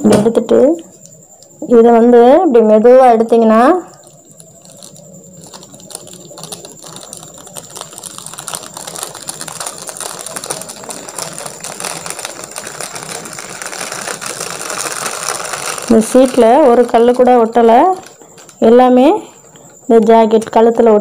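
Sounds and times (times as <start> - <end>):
plastic sheet crackling: 3.7 - 18.8.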